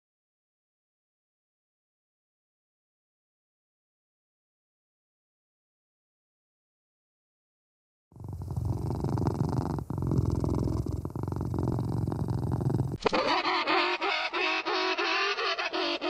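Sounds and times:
cat purring: 8.2 - 13.1.

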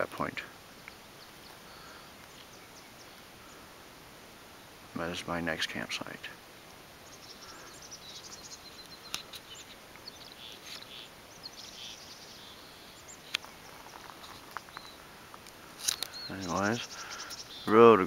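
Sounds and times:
faint bird chirps: 0.7 - 3.7, 6.9 - 18.0.

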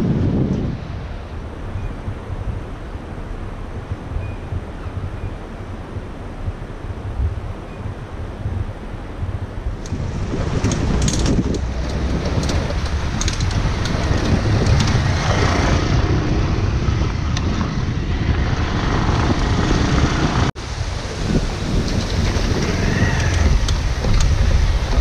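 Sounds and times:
motorcycle engine and tyre noise: 0.0 - 25.0
wind rush on microphone: 0.0 - 25.0
gravel ticks: 3.8 - 19.8, 21.6 - 25.0.

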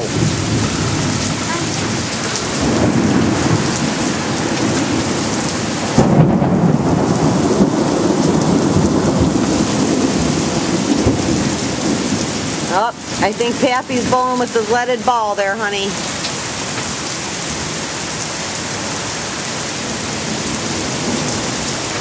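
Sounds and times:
thunder rumbling: 0.0 - 16.1
heavy rain pouring: 0.0 - 22.0.

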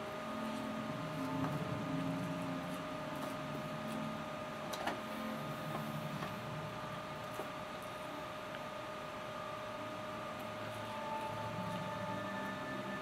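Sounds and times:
constant whine: 0.0 - 13.0
electrical hum and hiss: 0.0 - 13.0.

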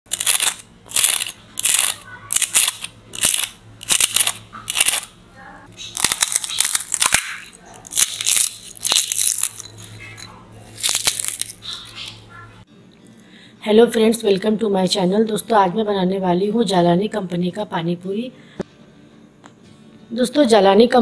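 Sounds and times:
crisp shells crushed by hand: 0.1 - 5.1, 5.8 - 9.9, 10.8 - 12.0.

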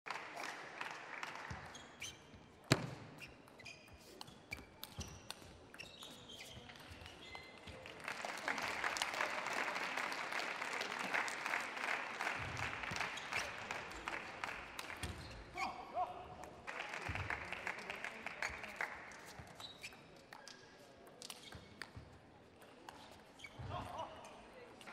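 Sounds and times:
crowd applauding: 0.1 - 1.7, 7.7 - 15.3, 16.6 - 19.3
shoes squeaking on floor: 1.7 - 7.7, 19.2 - 20.2, 22.8 - 24.0.

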